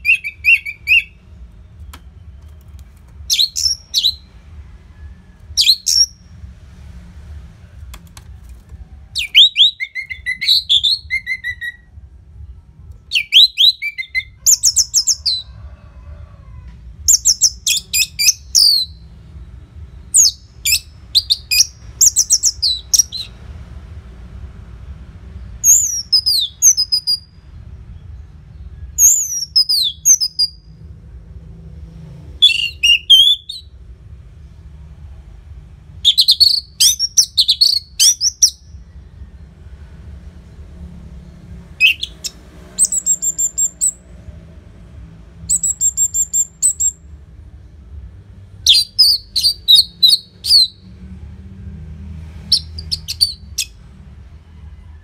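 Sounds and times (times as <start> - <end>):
thrush singing whistled phrases: 0.0 - 2.4, 3.3 - 4.4, 5.6 - 6.2, 9.2 - 11.9, 13.1 - 15.4, 20.2 - 23.4, 25.6 - 27.3, 29.0 - 30.7, 32.4 - 33.7, 36.0 - 38.9, 41.8 - 44.0, 45.5 - 47.0, 48.7 - 50.9, 52.5 - 53.8.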